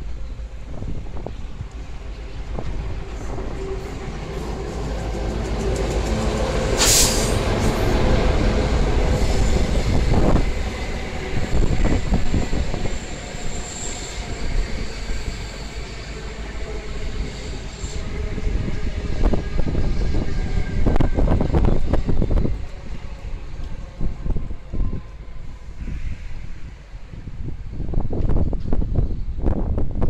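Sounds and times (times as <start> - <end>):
diesel locomotive engine: 0.0 - 30.0
train carriages rumbling: 0.0 - 30.0
clicking train wheels: 1.2 - 25.2
loud hiss: 6.7 - 8.0
faint high squeal: 11.5 - 18.8.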